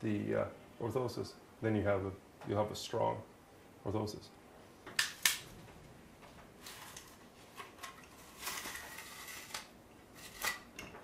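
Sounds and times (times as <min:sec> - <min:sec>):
shears snipping and crunching: 0:06.6 - 0:10.8.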